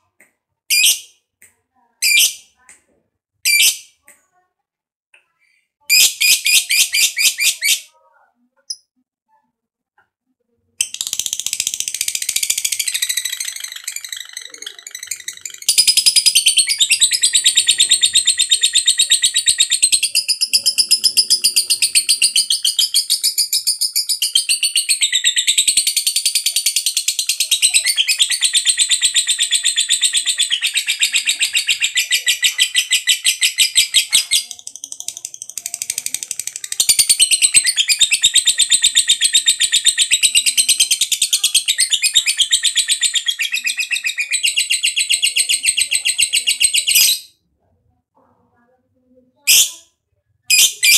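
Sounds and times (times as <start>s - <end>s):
lovebird chattering trill: 10.8s - 47.3s.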